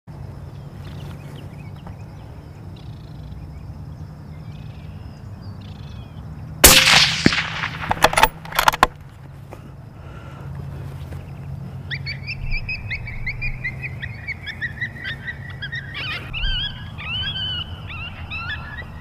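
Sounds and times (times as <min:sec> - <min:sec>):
rifle shot: 0:06.6 - 0:08.9.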